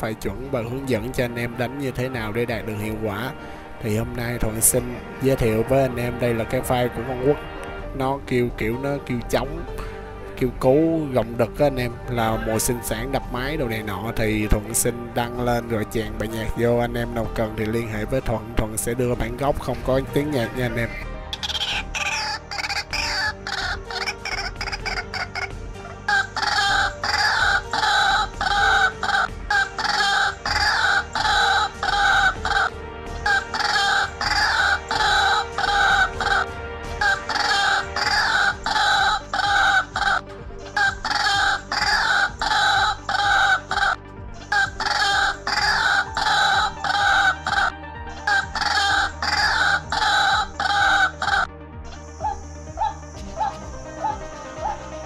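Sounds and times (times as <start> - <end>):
soft background music: 0.0 - 55.0
waterhen call repeated short notes: 21.3 - 25.5, 26.1 - 51.5.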